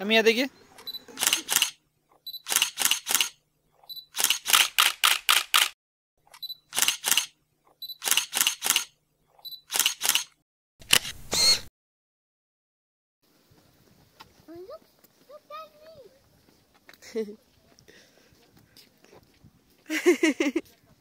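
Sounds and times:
camera shutter clicks: 0.8s - 1.8s, 2.4s - 3.4s, 4.1s - 7.4s, 8.0s - 9.0s, 9.6s - 11.6s
short high beep: 11.3s - 11.7s.

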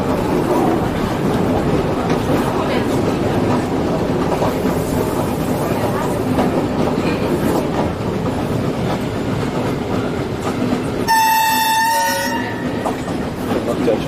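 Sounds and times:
train engine hum: 0.0s - 14.0s
wheels clacking over rail joints: 0.0s - 14.0s.

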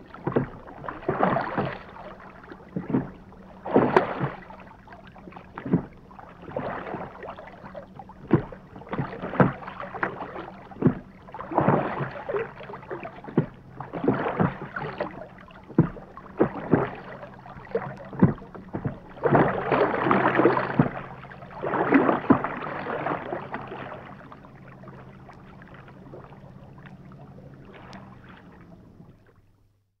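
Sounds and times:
oars splashing and knocking: 0.0s - 29.7s.

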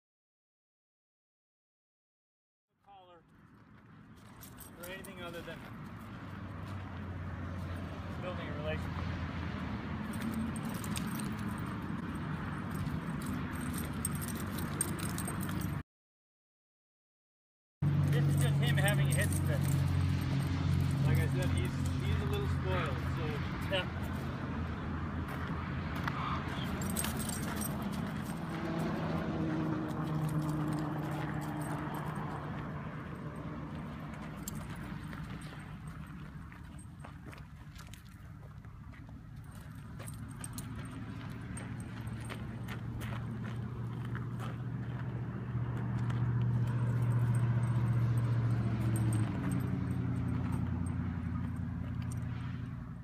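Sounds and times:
low vehicle engine hum: 3.3s - 15.8s, 17.8s - 53.0s
dog collar jingling: 4.2s - 5.4s, 10.1s - 15.8s, 18.0s - 23.7s, 26.6s - 28.9s, 30.0s - 32.4s, 34.2s - 38.0s, 39.4s - 43.2s, 46.6s - 52.5s
footsteps on gravel: 25.2s - 32.8s, 33.4s - 47.4s.

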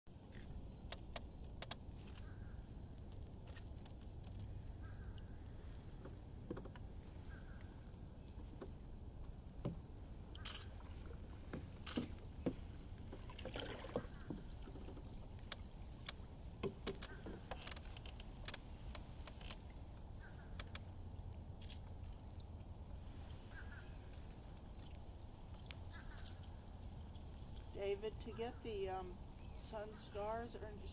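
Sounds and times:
low steady rumble: 0.1s - 30.9s
paddle knocks and splashes: 10.8s - 17.6s.

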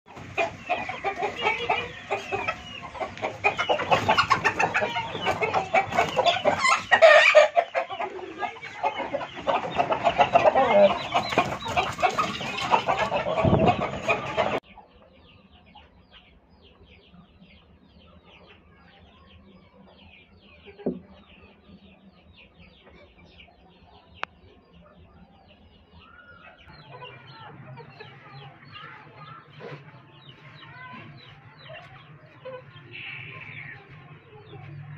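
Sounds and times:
birds scuffling: 0.1s - 14.6s, 26.8s - 34.9s
chickens clucking and calling: 0.1s - 34.9s.

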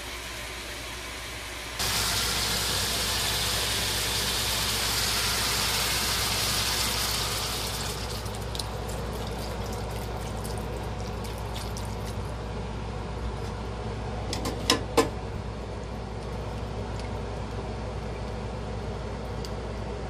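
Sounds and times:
meat sizzling in skillet: 1.8s - 8.3s
broth pouring: 1.8s - 12.4s.

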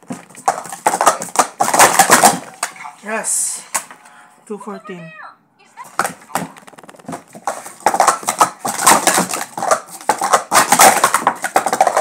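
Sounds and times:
plastic cups clattering: 0.0s - 3.0s, 6.0s - 12.0s.

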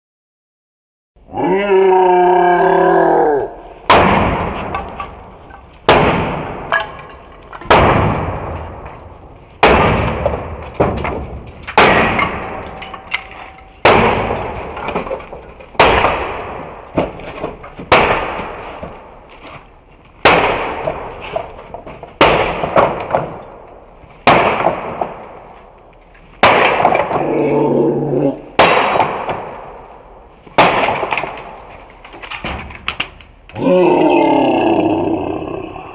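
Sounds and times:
axe chopping wood: 3.9s - 5.2s, 5.8s - 7.0s, 7.6s - 8.5s, 9.6s - 12.7s, 13.8s - 19.6s, 20.2s - 23.4s, 26.4s - 27.3s, 28.6s - 29.6s, 30.6s - 31.6s.

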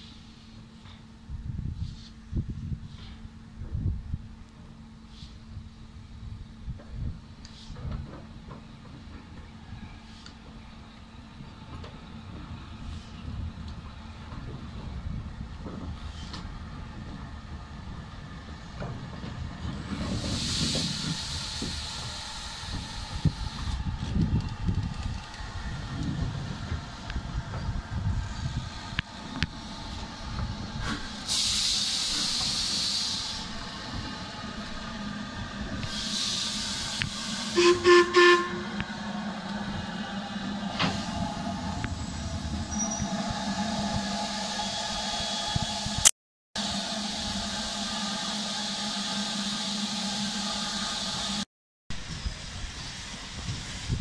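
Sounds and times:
steam locomotive wheels rumbling: 0.0s - 54.0s
steam hissing: 19.9s - 23.8s, 29.6s - 38.3s
steam locomotive whistle blasts: 37.4s - 38.8s, 46.6s - 51.4s.

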